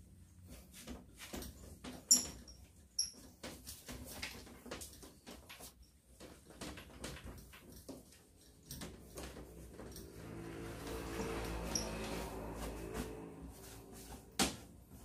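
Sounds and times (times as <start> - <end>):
cloth rubbing on glass mirror: 9.3 - 15.0
short high squeaks: 11.6 - 12.6.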